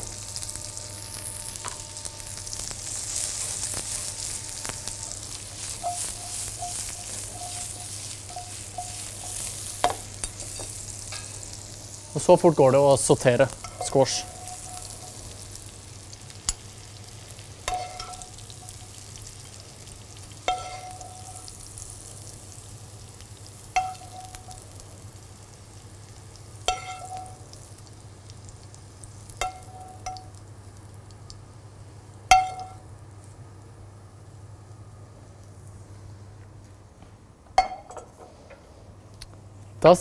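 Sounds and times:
vegetables sizzling in pan: 0.0 - 35.9
metal spoon clinking on pan: 5.8 - 11.4, 17.7 - 18.8, 20.5 - 21.5, 23.8 - 24.6, 26.7 - 27.4, 29.4 - 30.4, 37.6 - 38.1.

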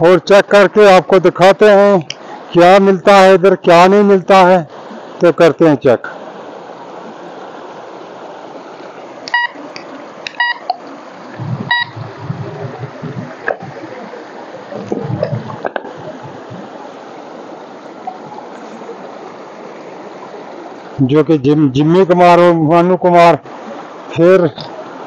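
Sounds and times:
stream running over stones: 0.0 - 25.0
metal detector beeps: 9.3 - 9.6, 10.4 - 10.8, 11.7 - 12.0
dull low thumps: 11.3 - 13.9, 14.7 - 16.7.

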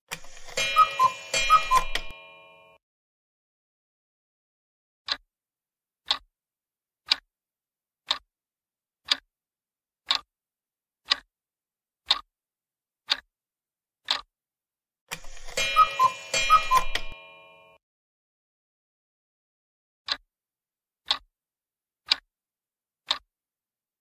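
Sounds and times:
clock ticks: 0.1 - 2.8, 6.0 - 6.3, 7.0 - 7.3, 8.0 - 8.3, 9.0 - 9.3, 10.0 - 10.3, 11.0 - 11.3, 12.0 - 12.3, 13.1 - 13.3, 14.0 - 14.3, 15.1 - 17.8, 21.0 - 21.3, 22.1 - 22.3, 23.0 - 23.3
bright ringing chime: 0.5 - 2.8, 15.5 - 17.8.

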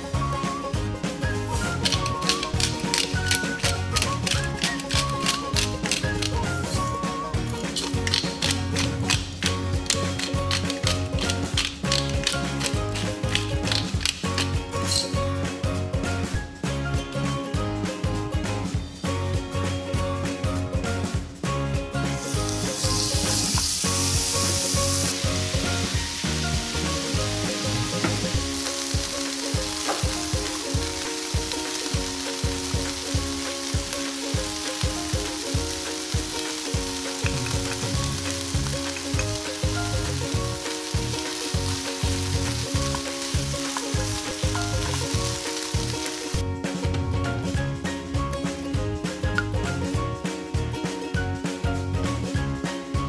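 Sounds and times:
chicken sizzling in oil: 0.0 - 15.2, 22.0 - 46.4.

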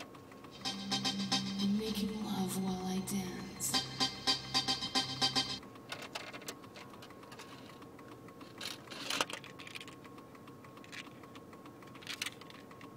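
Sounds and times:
music from cassette deck: 0.5 - 5.6
plastic clicks and clatter: 5.7 - 12.9.

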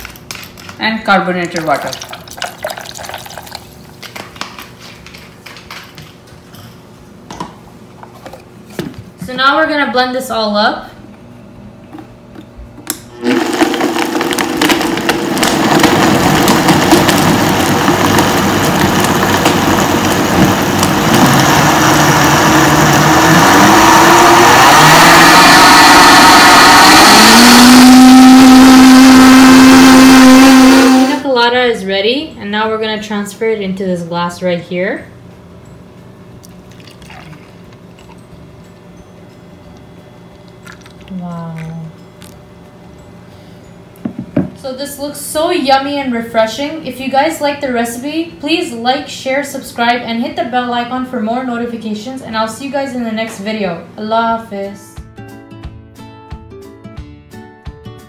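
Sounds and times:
thick drink pouring into mug: 1.6 - 3.8, 36.4 - 38.2, 40.5 - 41.2
blender motor blending ice: 13.1 - 31.2.

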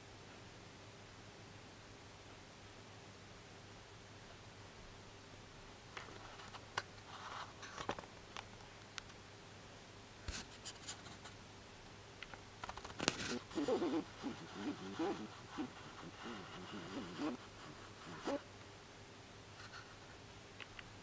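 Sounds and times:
low steady hum: 8.1 - 21.0.

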